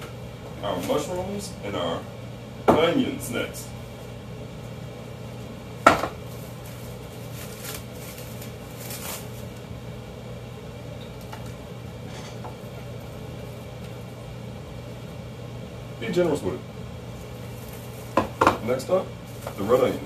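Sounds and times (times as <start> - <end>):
steady low hum: 0.0 - 20.0
plastic wrap crinkling: 6.3 - 9.7, 17.3 - 18.4, 19.2 - 20.0.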